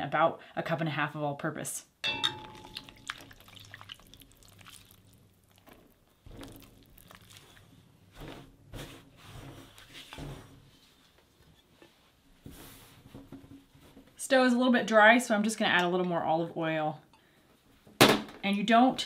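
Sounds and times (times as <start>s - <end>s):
spatula stirring and scraping bowl: 2.1s - 13.1s.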